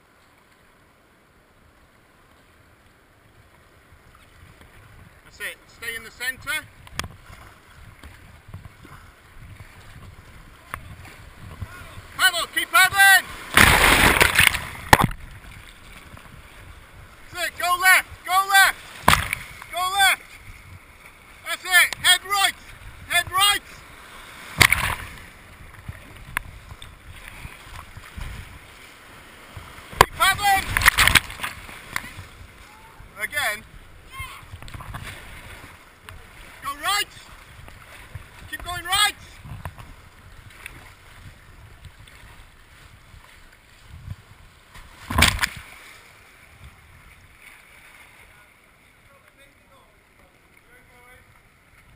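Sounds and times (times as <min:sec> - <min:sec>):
paddle strokes: 0:00.0 - 0:51.9
wind on microphone: 0:03.9 - 0:05.4, 0:06.4 - 0:12.2, 0:13.4 - 0:17.3, 0:20.3 - 0:21.0, 0:22.0 - 0:23.8, 0:24.4 - 0:28.8, 0:29.4 - 0:36.4, 0:37.1 - 0:45.8
water splashing over camera: 0:06.4 - 0:51.9
white water rushing: 0:07.4 - 0:26.2, 0:26.8 - 0:39.5.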